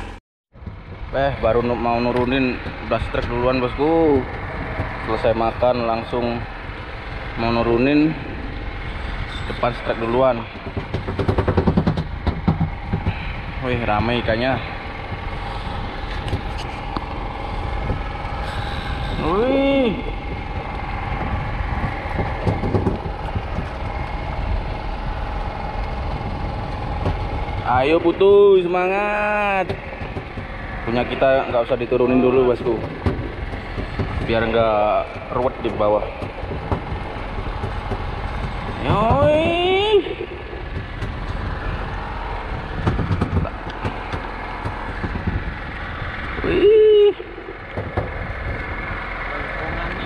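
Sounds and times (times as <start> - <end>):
boat engine droning: 0.0 - 50.0.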